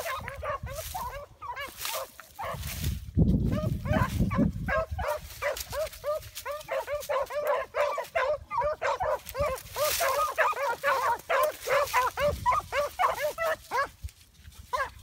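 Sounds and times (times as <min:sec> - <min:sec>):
hounds baying: 0:00.0 - 0:02.8, 0:03.4 - 0:14.0, 0:14.6 - 0:15.0.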